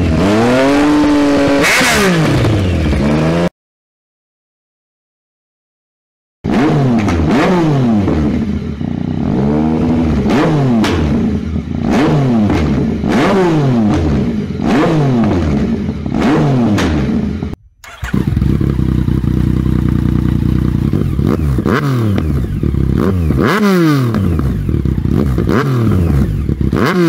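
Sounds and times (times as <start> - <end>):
motorcycle engine revving: 0.0 - 3.5, 6.5 - 27.0
motorcycle engine idling: 17.6 - 26.9.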